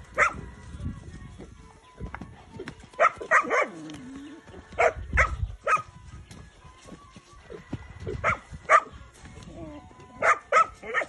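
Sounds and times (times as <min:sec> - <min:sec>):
small dog barking: 0:00.2 - 0:00.4, 0:03.0 - 0:03.8, 0:04.8 - 0:05.8, 0:08.2 - 0:08.9, 0:10.2 - 0:11.0.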